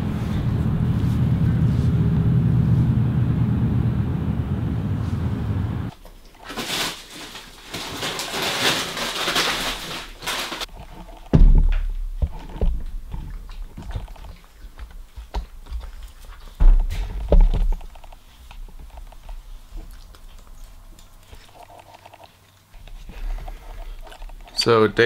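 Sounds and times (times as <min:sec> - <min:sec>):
low thumps: 0:00.0 - 0:05.9
puppy crunching dry kibble: 0:05.9 - 0:25.0
rustling: 0:05.9 - 0:25.0.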